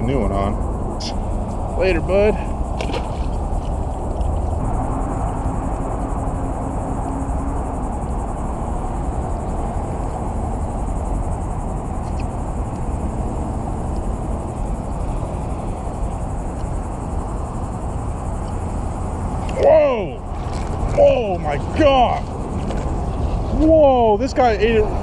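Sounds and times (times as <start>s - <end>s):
low rumble: 0.0s - 19.4s
faint high insect trill: 0.0s - 25.0s
low hum: 0.0s - 25.0s.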